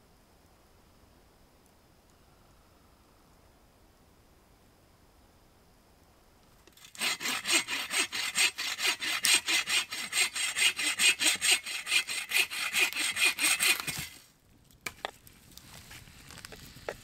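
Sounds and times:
hand saw cutting wood: 0:06.7 - 0:14.2.

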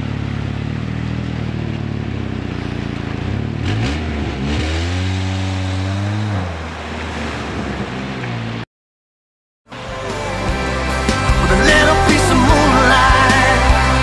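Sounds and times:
car engine revving: 0:00.0 - 0:08.6
tyres churning water: 0:05.3 - 0:08.6.

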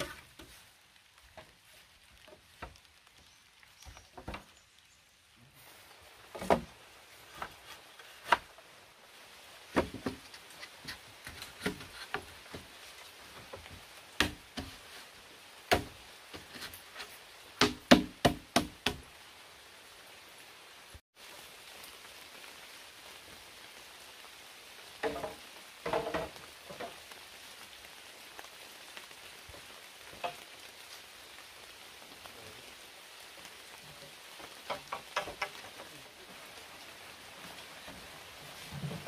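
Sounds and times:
steady hiss: 0:00.0 - 0:39.0
bamboo poles knocking: 0:06.3 - 0:06.7, 0:09.7 - 0:12.7, 0:13.4 - 0:14.8, 0:15.7 - 0:16.7, 0:17.6 - 0:19.0, 0:25.0 - 0:27.0, 0:30.1 - 0:30.4, 0:34.4 - 0:35.9.

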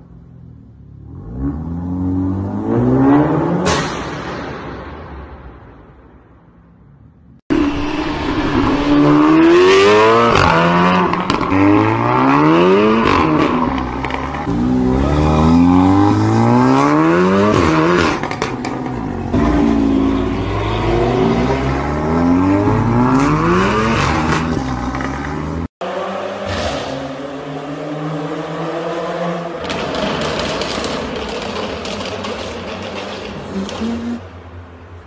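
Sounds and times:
exhaust pops and crackles: 0:29.6 - 0:33.5
car engine accelerating through gears: 0:33.4 - 0:34.2.

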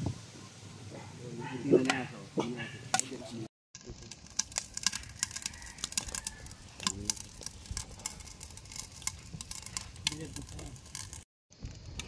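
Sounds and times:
wood fire crackling and popping: 0:03.8 - 0:12.0.

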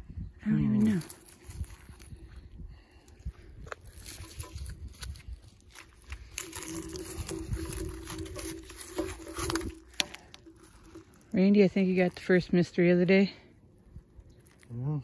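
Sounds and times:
scraping and clicking handling noise: 0:03.7 - 0:11.4.

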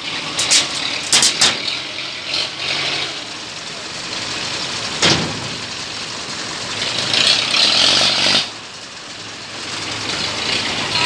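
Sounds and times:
diesel engine idling: 0:00.0 - 0:11.0
steel ramp knock: 0:00.3 - 0:01.8, 0:05.0 - 0:05.7.

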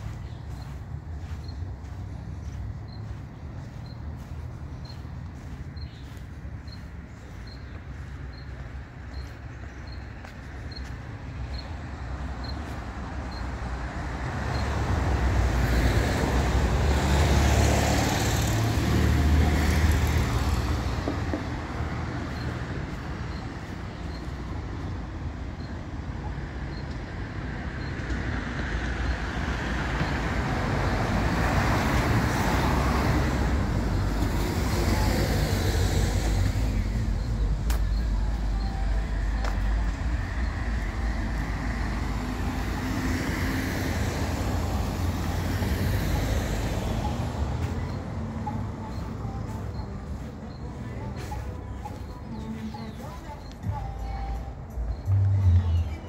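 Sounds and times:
cars passing: 0:00.0 - 0:56.0
steady low traffic rumble: 0:00.0 - 0:56.0.

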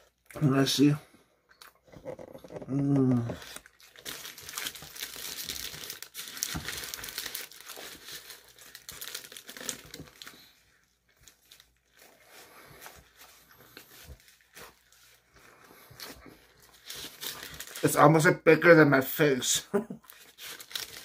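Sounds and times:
paper wrapper crinkling: 0:03.1 - 0:18.1, 0:20.0 - 0:21.0.

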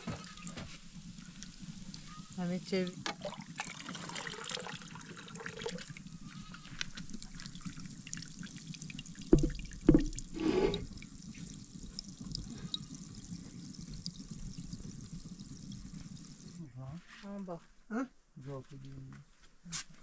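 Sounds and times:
water running: 0:00.0 - 0:16.6
sharp knocks: 0:09.3 - 0:10.2.

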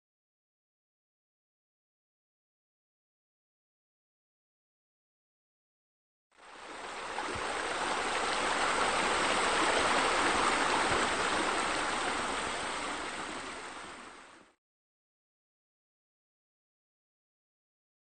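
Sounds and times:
running water: 0:06.4 - 0:14.6.

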